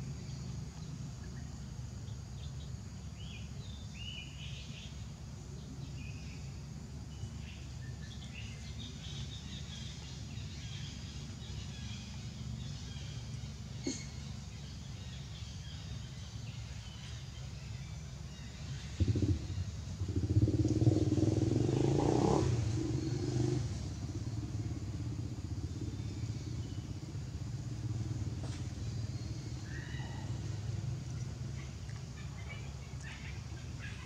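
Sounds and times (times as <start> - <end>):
vehicle engine passing: 18.7 - 32.1.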